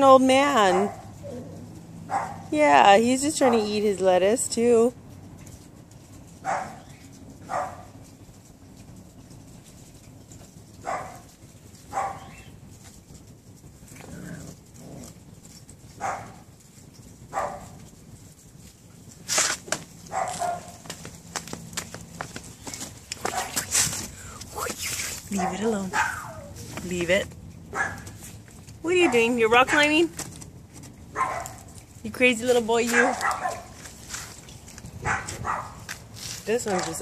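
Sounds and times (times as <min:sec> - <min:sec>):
dog barking: 0:00.6 - 0:01.1, 0:02.1 - 0:02.5, 0:06.4 - 0:06.9, 0:07.5 - 0:07.9, 0:10.8 - 0:11.2, 0:11.9 - 0:12.4, 0:16.0 - 0:16.4, 0:17.3 - 0:17.8, 0:20.1 - 0:20.8, 0:23.3 - 0:23.6, 0:25.3 - 0:26.5, 0:27.7 - 0:28.1, 0:31.1 - 0:31.7, 0:32.9 - 0:33.7, 0:35.0 - 0:35.8.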